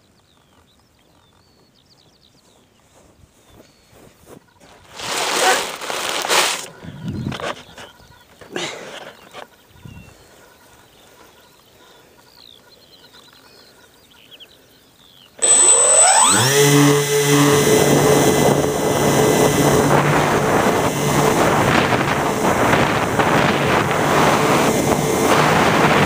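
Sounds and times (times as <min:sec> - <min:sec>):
electric motor whine: 0:15.4 - 0:26.0
wind rushing over microphone: 0:17.6 - 0:26.0.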